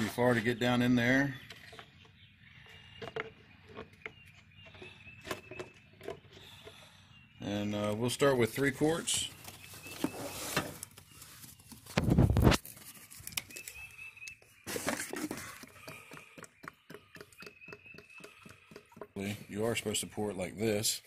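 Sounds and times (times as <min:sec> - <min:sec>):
plastic bottle clicks and rustles: 0:09.4 - 0:17.5.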